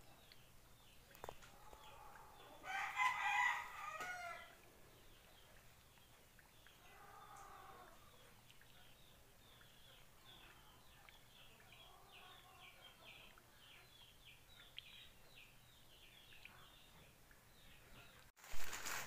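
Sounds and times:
small birds chirping: 0.0s - 18.3s
rooster crowing: 1.8s - 4.6s.

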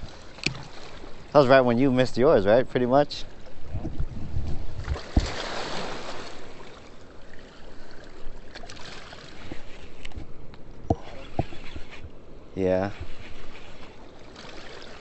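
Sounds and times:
rushing river water splashing: 4.8s - 10.0s, 12.6s - 15.0s.

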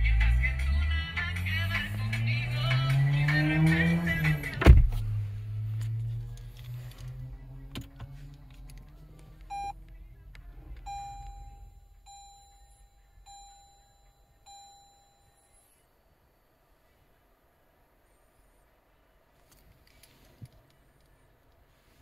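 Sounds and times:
short electronic beep: 9.5s - 9.8s, 10.9s - 15.8s
longer chimes: 10.9s - 15.8s.

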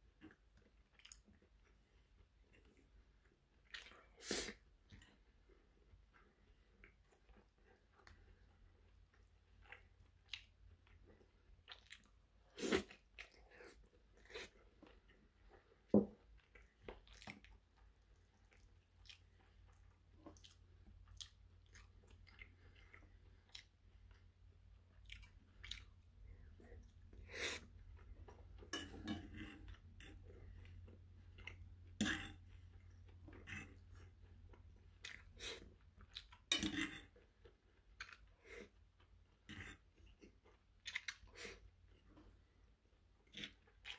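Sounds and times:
chewing and wet mouth sounds: 0.0s - 43.9s.

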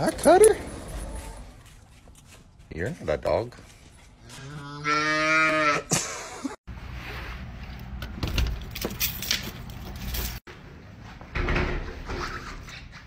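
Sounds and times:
calf mooing: 4.4s - 5.9s
keys jangling in a door lock: 8.4s - 10.5s.

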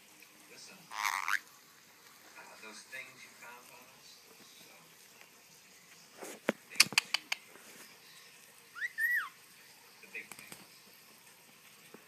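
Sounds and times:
parrot squeak: 0.9s - 1.4s, 8.8s - 9.4s.

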